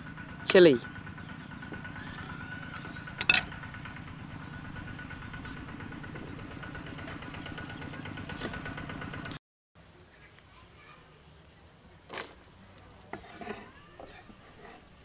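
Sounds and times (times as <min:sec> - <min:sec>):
low pulsing engine-like hum: 0:00.0 - 0:09.4.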